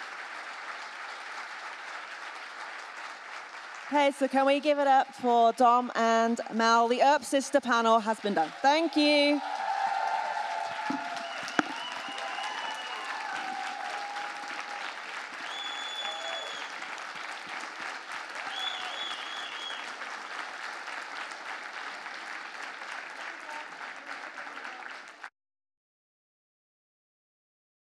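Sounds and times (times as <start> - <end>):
audience applauding: 0.0 - 4.8, 8.1 - 25.3
high-pitched cheers: 8.5 - 16.8, 18.4 - 20.0.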